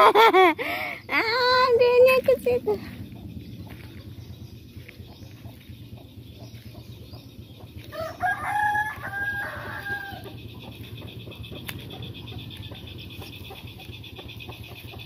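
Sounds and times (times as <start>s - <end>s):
rooster crowing: 7.8s - 10.4s.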